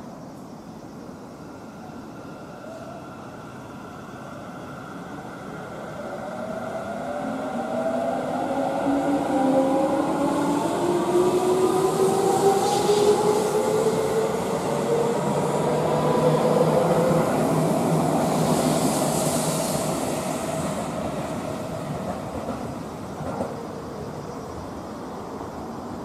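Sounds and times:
wheels rumbling on rail: 5.2 - 25.8.

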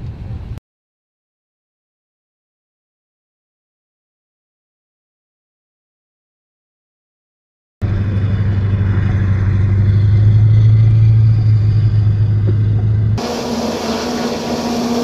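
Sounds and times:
hovercraft engine drone: 7.8 - 15.0.

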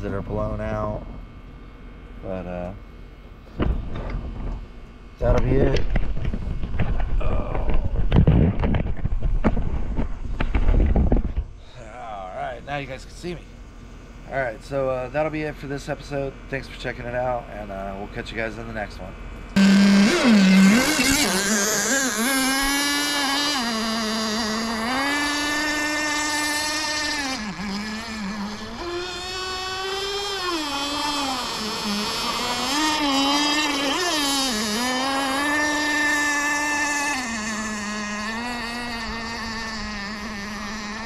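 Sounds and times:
two-stroke engine at high revs: 19.6 - 41.0.

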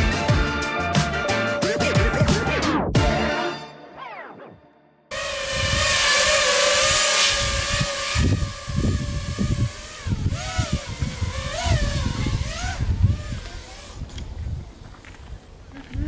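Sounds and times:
drone motors whining: 5.1 - 15.2
wind buffeting microphone: 5.5 - 16.0.

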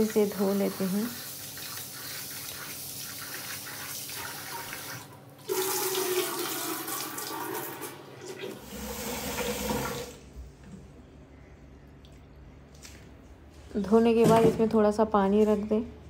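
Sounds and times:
water poured into steel sink: 1.6 - 10.2.

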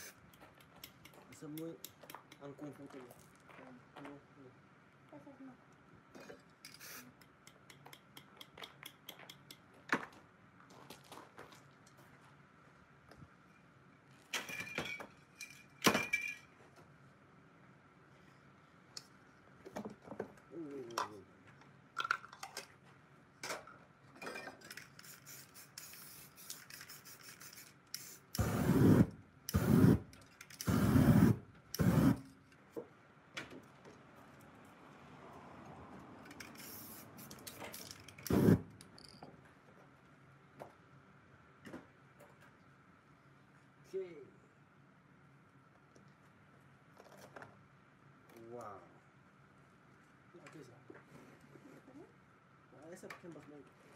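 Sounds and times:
spray can hissing: 0.0 - 0.2, 6.7 - 7.2, 24.9 - 32.3, 36.5 - 38.7.

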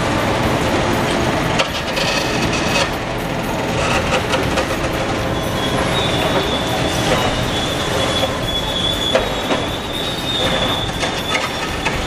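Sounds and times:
scraping metal: 1.6 - 12.0
high metallic squeal: 3.7 - 12.0.

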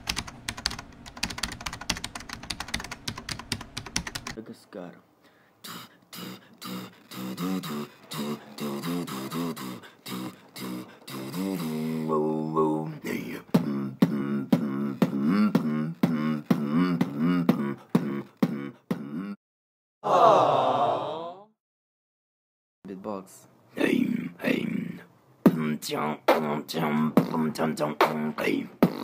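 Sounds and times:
beatboxing: 5.6 - 19.4, 23.9 - 29.0
hummed bass line: 13.5 - 19.4
loud voiced sound: 20.0 - 21.5.

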